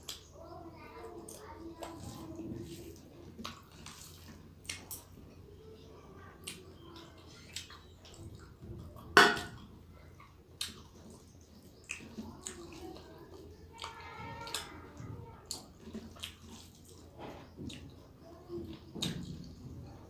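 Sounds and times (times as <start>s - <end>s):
steel bowl clanking: 9.2s - 9.6s.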